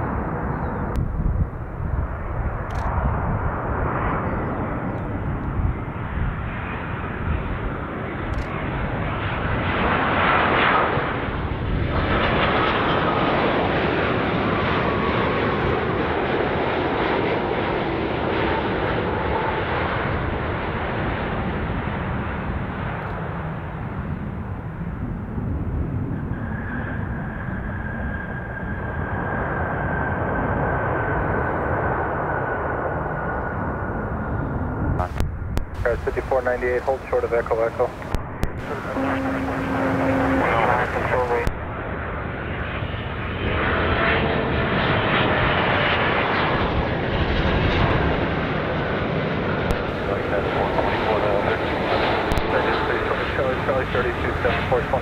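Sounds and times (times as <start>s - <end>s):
jet airliner landing: 0.0s - 55.0s
engine whine falling in pitch: 35.0s - 42.0s
steady high whine: 35.0s - 42.4s, 49.7s - 55.0s.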